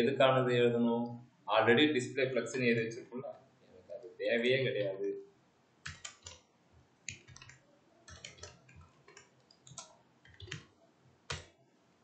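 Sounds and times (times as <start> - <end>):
computer keyboard typing: 5.8 - 6.4, 7.1 - 11.6.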